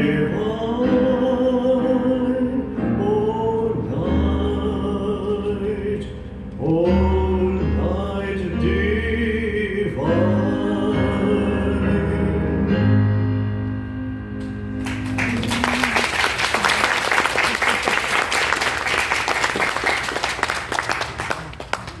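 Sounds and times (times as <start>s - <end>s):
hymn singing with keyboard: 0.0s - 13.5s
congregation applauding: 14.8s - 22.0s.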